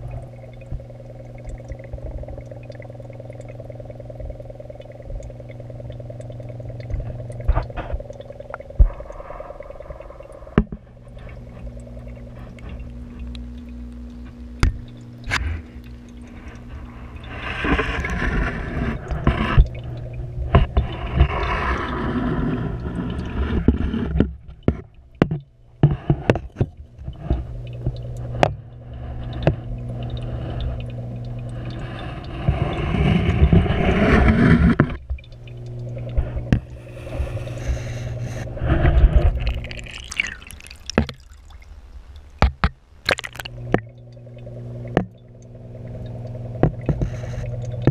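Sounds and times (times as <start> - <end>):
low hum: 0.0 - 25.8
gurgling rushing water: 31.6 - 47.9.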